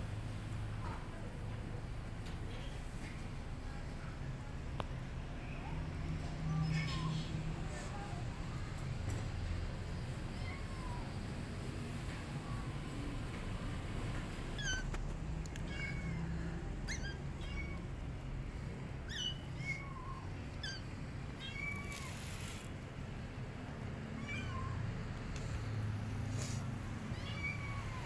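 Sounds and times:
kitten meowing: 0:14.6 - 0:15.0, 0:15.6 - 0:17.9, 0:19.0 - 0:22.7, 0:24.1 - 0:24.9, 0:26.4 - 0:28.0.

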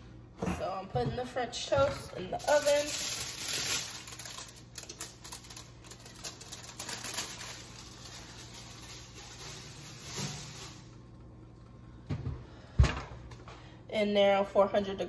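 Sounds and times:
low steady hum: 0:00.0 - 0:15.0
aluminum foil crinkling: 0:02.3 - 0:11.1.

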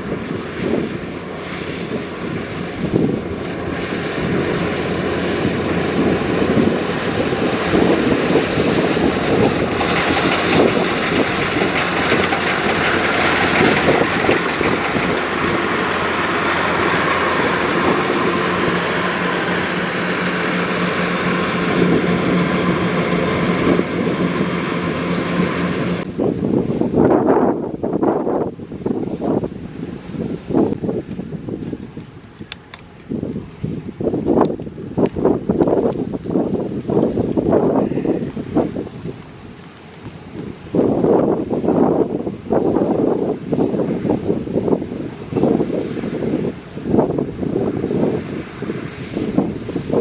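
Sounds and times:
diesel engine drone: 0:00.0 - 0:26.4
working machinery noise: 0:00.4 - 0:26.1.

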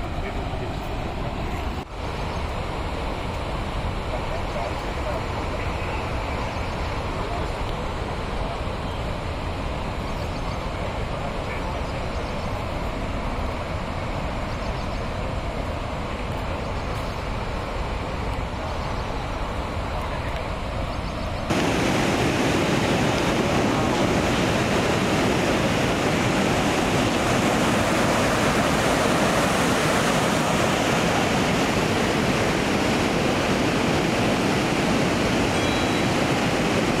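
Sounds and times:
rushing floodwater: 0:00.0 - 0:37.0.

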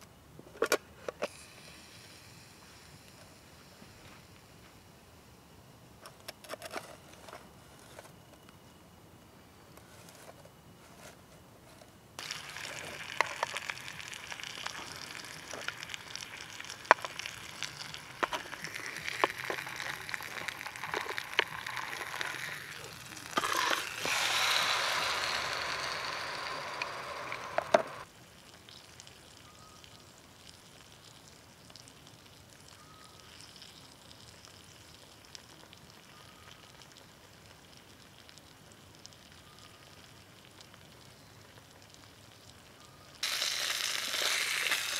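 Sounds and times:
meat sizzling in a pan: 0:12.2 - 0:29.3, 0:43.2 - 0:44.9
faint short chirps: 0:32.7 - 0:33.6.

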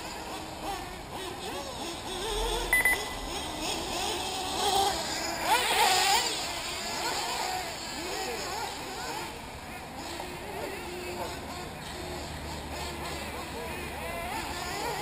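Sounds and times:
model car engines whining: 0:00.0 - 0:15.0
short electronic beep: 0:02.7 - 0:03.2.

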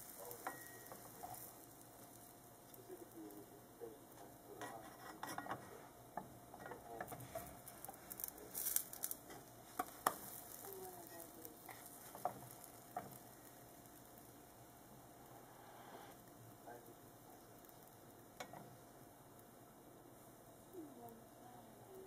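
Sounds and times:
pancake batter sizzling in a pan: 0:00.0 - 0:22.0
spatula scraping and clicking on pan: 0:00.1 - 0:02.3, 0:04.6 - 0:10.7, 0:11.6 - 0:13.6, 0:17.7 - 0:18.8.

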